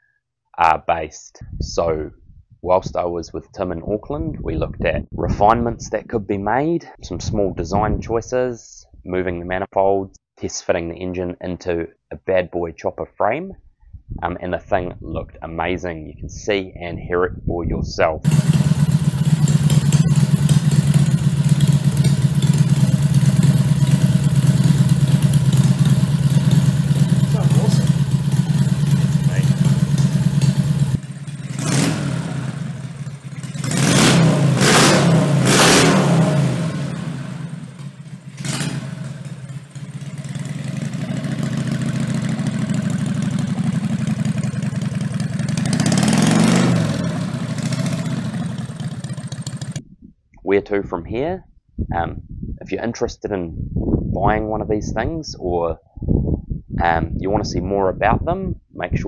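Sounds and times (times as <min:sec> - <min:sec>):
minibike engine idling: 0:18.3 - 0:33.8, 0:37.0 - 0:49.8.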